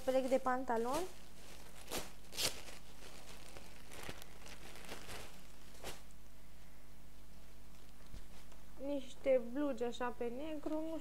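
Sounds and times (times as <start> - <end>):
plastic packaging crinkling: 0.0 - 6.2.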